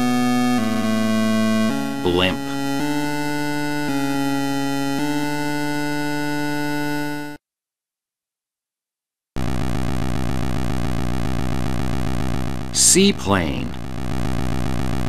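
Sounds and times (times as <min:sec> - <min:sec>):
buzzy pulsing synthesized tone: 0:00.0 - 0:07.4, 0:09.4 - 0:15.0
synthesized drone: 0:09.4 - 0:15.0.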